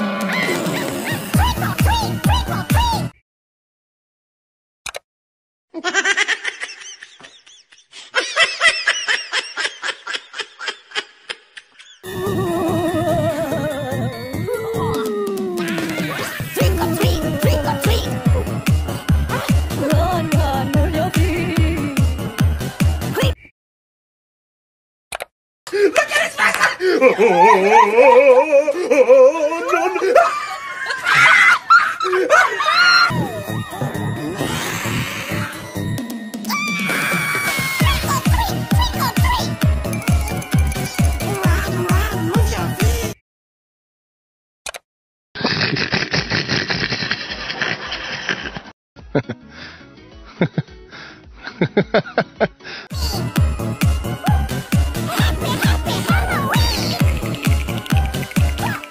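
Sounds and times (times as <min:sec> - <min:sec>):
music: 0:00.0 - 0:03.2, 0:12.0 - 0:23.4, 0:33.1 - 0:43.2, 0:49.0 - 0:58.9
high-pitched laughter: 0:05.8 - 0:18.4, 0:25.8 - 0:33.1, 0:36.6 - 0:39.5, 0:45.6 - 0:49.4, 0:55.0 - 0:57.0
music with steady beat: 0:37.8 - 0:43.2, 0:53.0 - 0:58.9.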